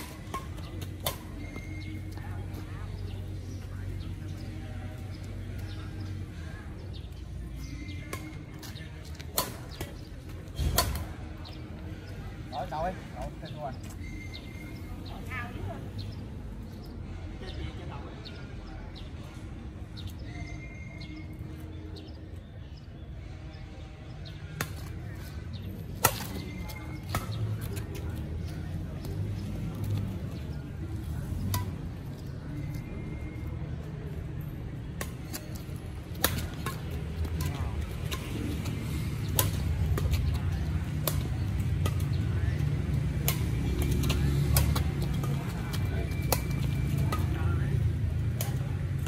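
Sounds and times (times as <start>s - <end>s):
traffic rumble: 0.0s - 49.0s
racket hitting shuttlecock: 9.2s - 10.0s, 35.0s - 47.4s.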